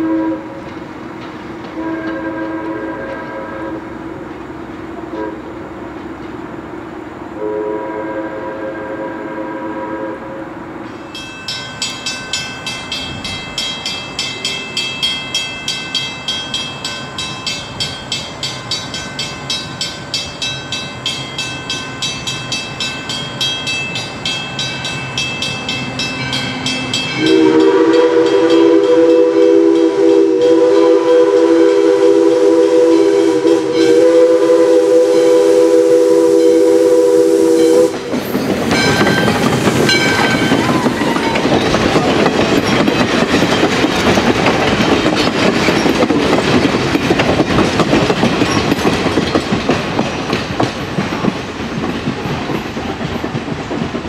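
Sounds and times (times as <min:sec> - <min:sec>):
train wheels on rails: 0:00.0 - 0:54.0
crossing signal bell ringing: 0:11.0 - 0:29.9, 0:37.5 - 0:43.7
steam chime whistle blast: 0:26.1 - 0:38.1.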